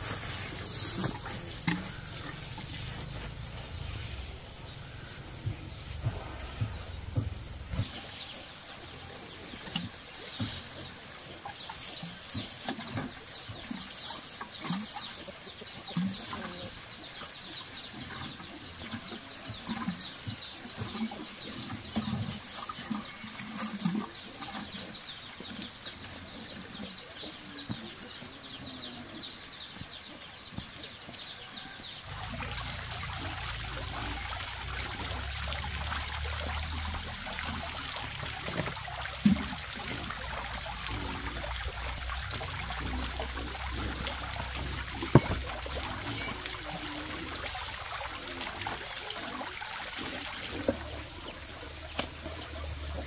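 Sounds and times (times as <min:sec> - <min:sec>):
steady noise with low rumble: 0:00.0 - 0:11.0
chickens clucking: 0:00.0 - 0:35.2, 0:36.6 - 0:53.0.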